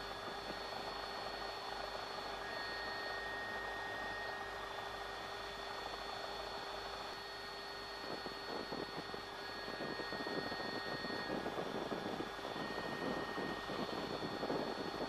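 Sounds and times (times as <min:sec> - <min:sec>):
aircraft cabin hiss with whining tones: 0:06.9 - 0:15.0.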